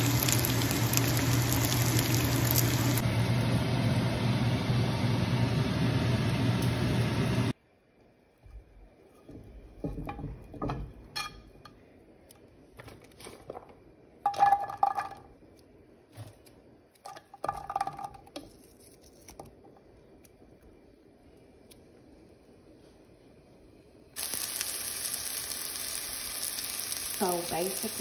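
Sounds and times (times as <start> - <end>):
diced onion clattering into pan: 13.3 - 15.2, 17.0 - 18.5.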